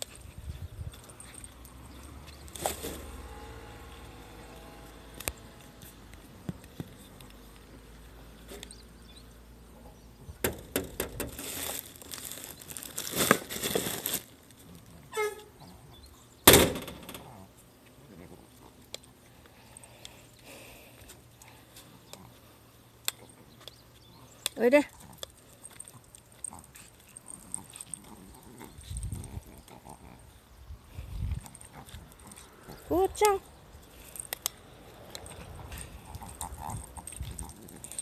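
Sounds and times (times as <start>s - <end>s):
plastic bag rustling: 11.1s - 14.8s.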